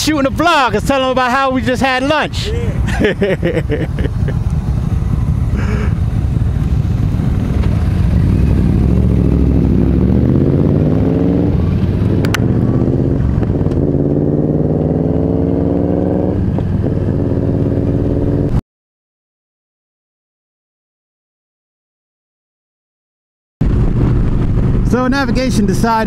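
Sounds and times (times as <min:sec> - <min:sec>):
motorcycle engine accelerating: 0:03.4 - 0:18.6, 0:23.6 - 0:26.0.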